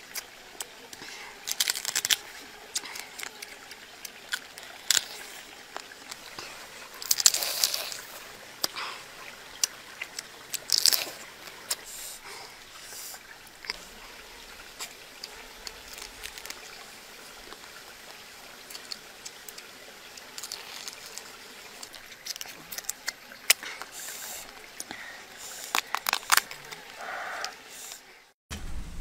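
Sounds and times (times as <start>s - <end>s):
chewing: 0.0s - 28.1s
crab shell cracking: 0.1s - 6.3s, 7.0s - 8.8s, 9.6s - 11.8s, 14.7s - 16.8s, 17.4s - 28.0s.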